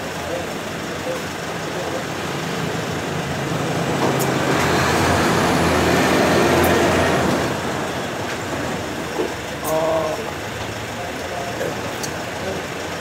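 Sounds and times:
large vehicle passing: 0:01.8 - 0:09.1.

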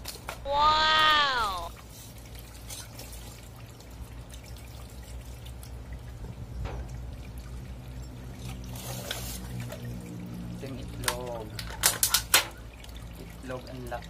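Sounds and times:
knife cleaning fish: 0:08.4 - 0:09.6.

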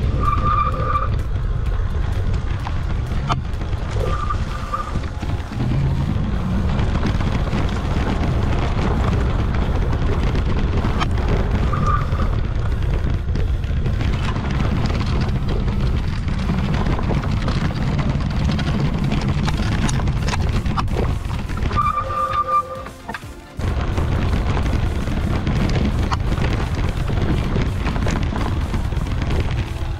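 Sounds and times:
wind rumble on microphone: 0:00.0 - 0:22.8, 0:23.6 - 0:29.9
bicycle rolling over bumpy dirt: 0:00.0 - 0:29.9
background music: 0:20.5 - 0:29.9.

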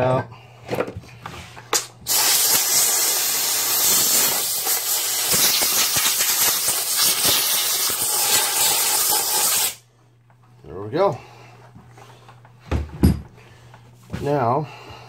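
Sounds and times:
compressed air hissing: 0:02.0 - 0:09.8.

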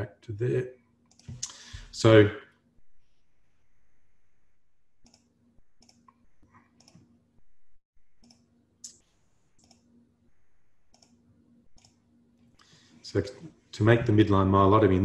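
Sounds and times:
faint repeating clicks: 0:01.0 - 0:01.8, 0:05.0 - 0:07.5, 0:08.2 - 0:09.9, 0:10.8 - 0:12.8
short low hum: 0:02.8 - 0:12.1.

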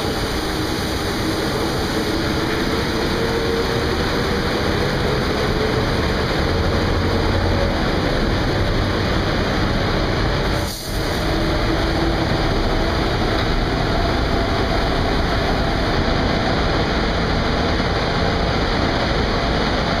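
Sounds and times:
car wash spray and machinery: 0:00.0 - 0:20.0.

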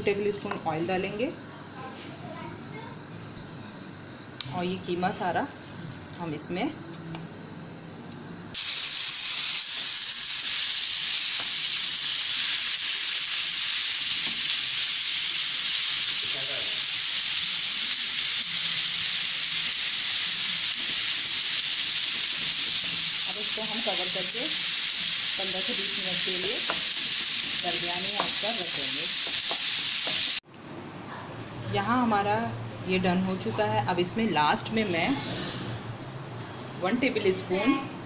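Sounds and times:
meat sizzling in a pan: 0:08.6 - 0:30.4.

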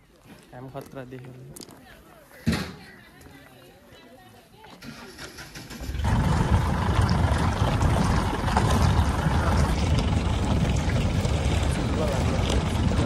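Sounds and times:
road noise: 0:04.8 - 0:13.0
jeep engine rumbling: 0:05.0 - 0:13.0
wind noise: 0:05.7 - 0:13.0.

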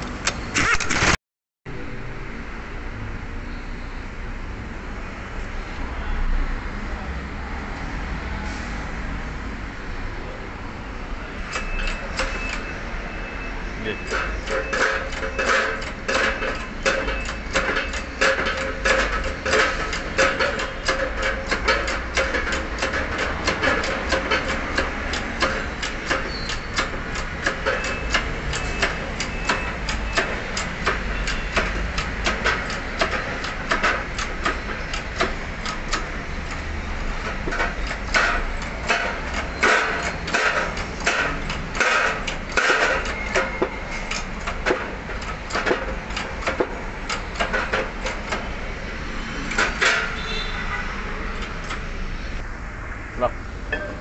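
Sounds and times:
metallic clicking and knocking: 0:14.0 - 0:48.7, 0:49.4 - 0:50.5.

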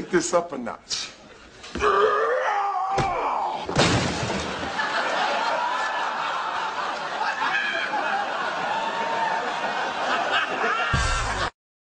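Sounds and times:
medicine ball crash: 0:03.0 - 0:04.7
people laughing: 0:04.5 - 0:11.5.

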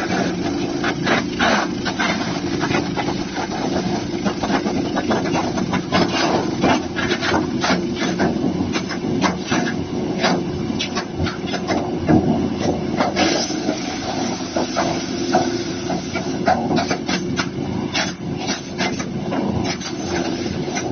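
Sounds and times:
petrol engine running: 0:00.0 - 0:20.9.

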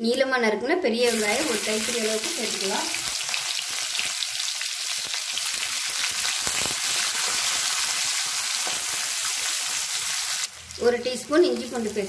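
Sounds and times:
onions sizzling in hot oil: 0:01.0 - 0:12.0.

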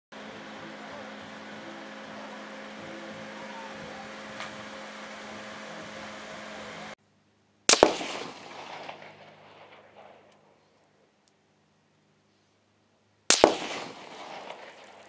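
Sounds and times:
background hiss: 0:00.1 - 0:15.0
rifle shot with echoes: 0:07.7 - 0:11.0, 0:13.3 - 0:15.0.

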